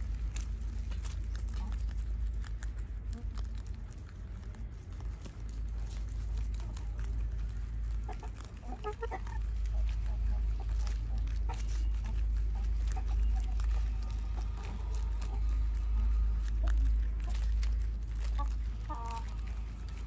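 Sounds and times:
rabbits chewing greens: 0:00.0 - 0:20.0
steady low rumble: 0:00.0 - 0:20.0
chicken clucking: 0:05.5 - 0:20.0.

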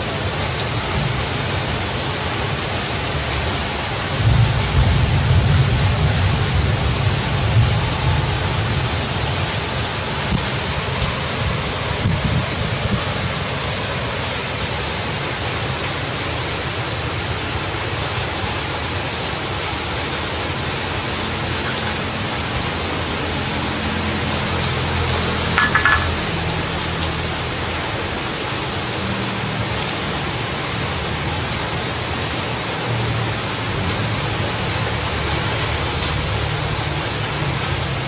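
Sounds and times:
heavy rain falling: 0:00.0 - 0:38.0
short high-pitched sound: 0:25.6 - 0:26.3.

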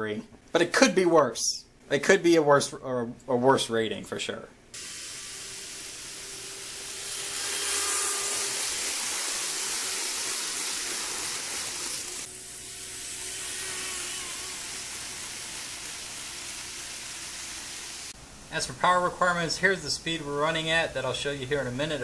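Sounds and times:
hiss: 0:04.8 - 0:18.2
model train motor whirring: 0:04.8 - 0:18.2.

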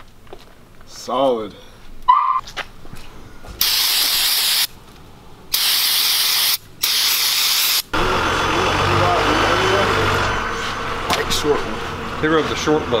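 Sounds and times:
low background noise: 0:00.0 - 0:05.6
aerosol spray hissing: 0:03.6 - 0:04.7, 0:05.5 - 0:07.9.

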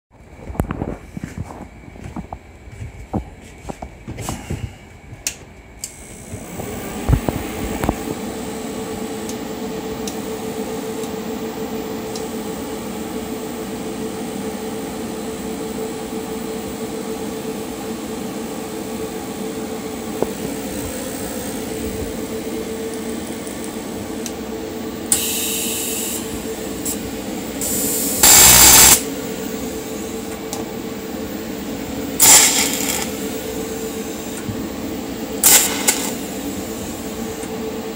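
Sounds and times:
welder humming and whining: 0:00.2 - 0:37.9
loud welding bursts: 0:27.6 - 0:29.1, 0:32.2 - 0:33.3, 0:35.4 - 0:36.4.

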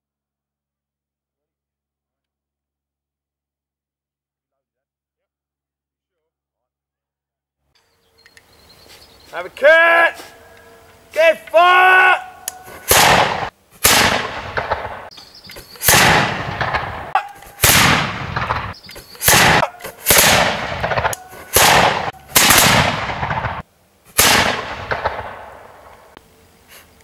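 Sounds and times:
muzzle-loading gun shots with echo: 0:12.4 - 0:15.1, 0:15.8 - 0:23.6, 0:24.2 - 0:26.2.

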